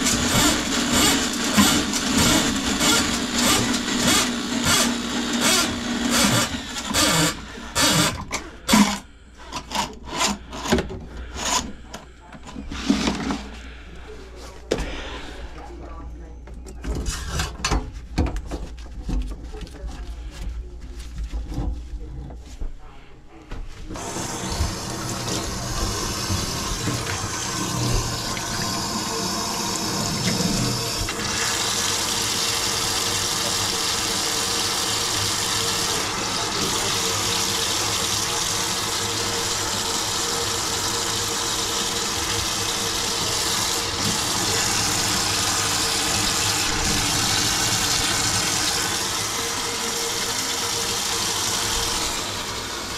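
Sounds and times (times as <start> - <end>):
faucet running into a steel sink: 24.0 - 52.9.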